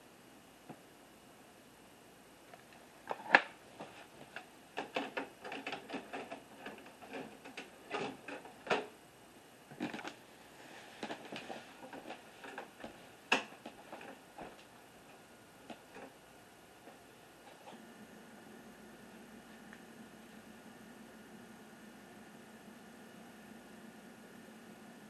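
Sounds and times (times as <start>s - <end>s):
mechanical clicks and clatter: 4.3s - 8.9s.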